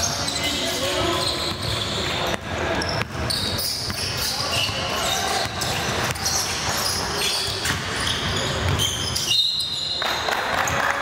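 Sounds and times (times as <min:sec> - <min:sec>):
sneakers squealing: 0:00.0 - 0:10.9
basketball bouncing on floor: 0:02.3 - 0:03.2.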